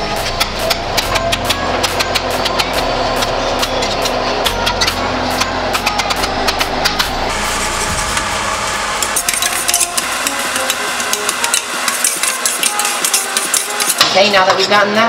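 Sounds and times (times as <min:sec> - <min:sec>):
low hum: 0:00.0 - 0:13.9.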